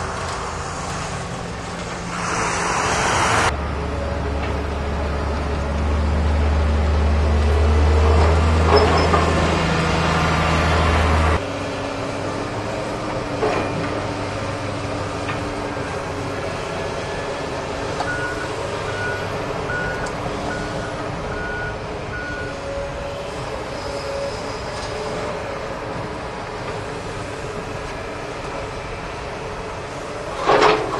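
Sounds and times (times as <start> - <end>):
excavator diesel engine: 0.0 - 30.9
wheel loader diesel engine: 0.0 - 30.9.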